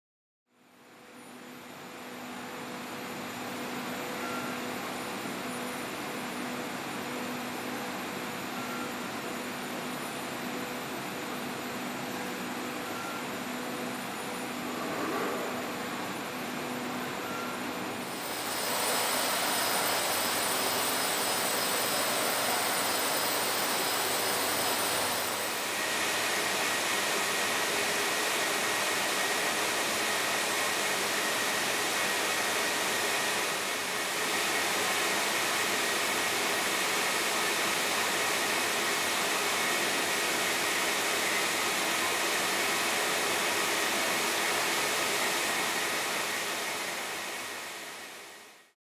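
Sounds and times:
low steady whine: 0.6s - 35.3s
high machine whine: 1.2s - 48.7s
spinning machines whirring: 18.1s - 25.7s.

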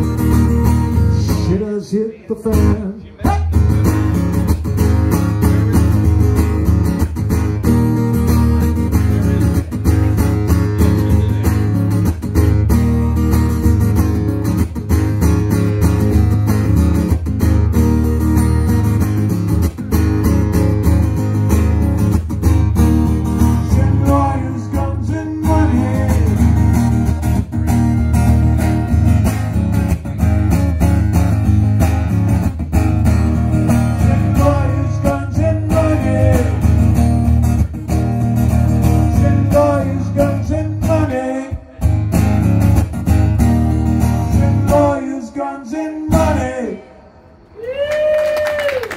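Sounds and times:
acoustic guitar strumming: 0.0s - 46.8s.

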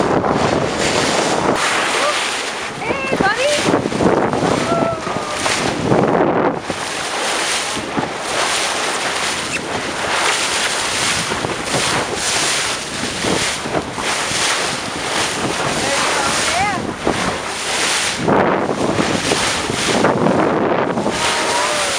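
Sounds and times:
water splashing along boat hull: 0.0s - 21.9s
wind buffeting microphone: 0.0s - 21.9s.

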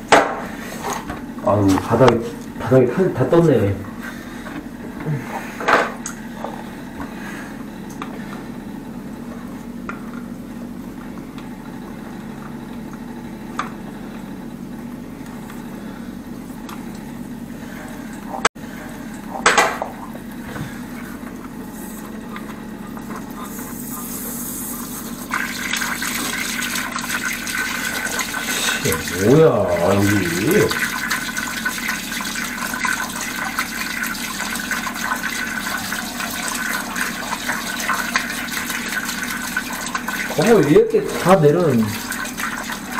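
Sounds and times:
water running through pipes: 0.0s - 7.5s, 17.7s - 42.9s
water hissing: 23.5s - 42.9s.

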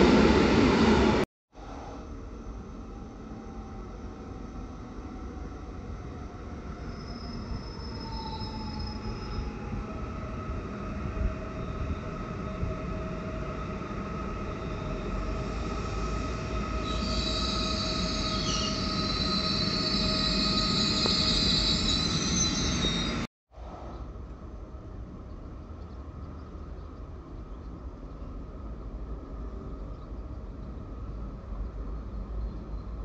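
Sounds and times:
train rumble and hum: 0.0s - 33.0s
high-pitched wheel squeal: 6.8s - 9.6s, 15.5s - 23.3s.

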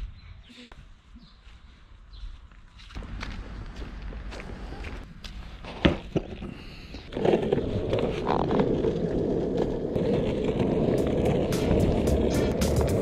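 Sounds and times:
skateboard wheels rolling on asphalt: 3.0s - 13.0s
skateboard clacks: 7.1s - 13.0s.

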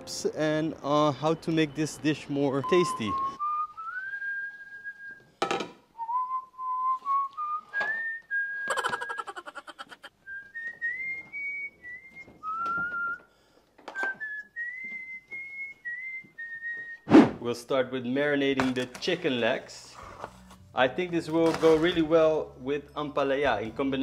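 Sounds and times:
person whistling a slow tune: 2.6s - 5.3s, 6.0s - 9.2s, 10.2s - 13.3s, 13.9s - 17.1s.

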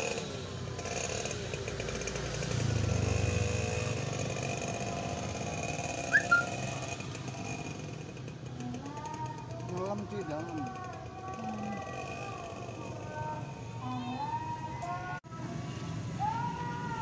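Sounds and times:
passing vehicle engine rumble: 0.0s - 17.0s
sharp high chirps: 6.1s - 6.6s.

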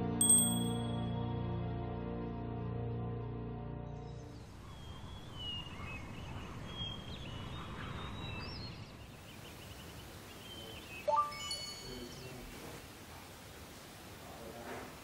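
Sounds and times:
bright chime: 0.2s - 1.1s, 11.1s - 12.4s
birds chirping: 4.2s - 12.8s.

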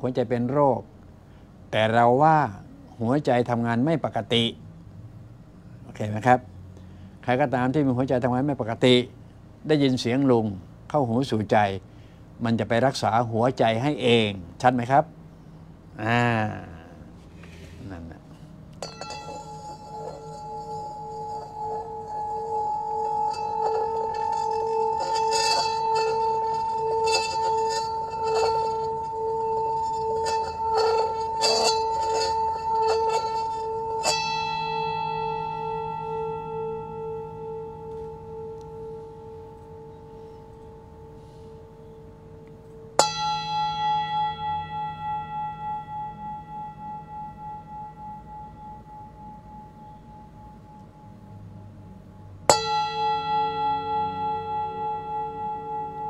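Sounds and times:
singing bowl pulsing tone: 18.8s - 56.0s
singing bowl strikes ringing: 18.8s - 56.0s.

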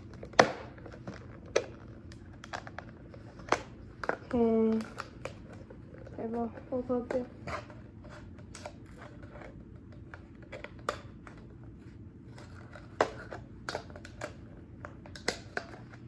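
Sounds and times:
plastic popping: 0.0s - 6.2s, 12.4s - 16.0s.

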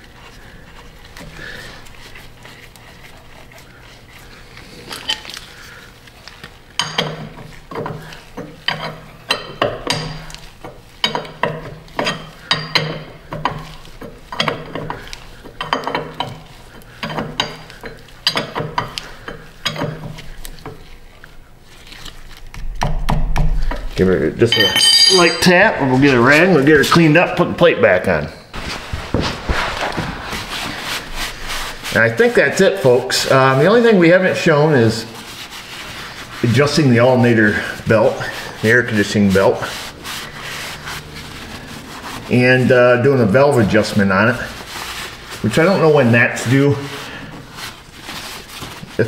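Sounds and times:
metal clinks: 24.5s - 25.8s.

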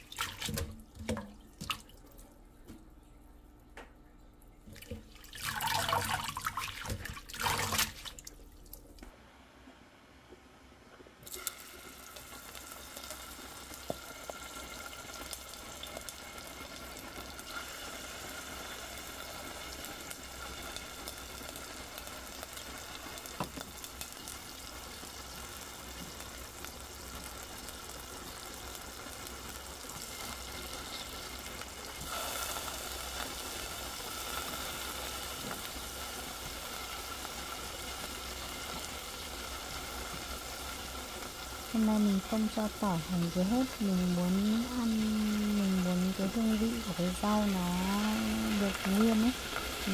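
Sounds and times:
hot oil sizzling in a frying pan: 11.2s - 49.9s.

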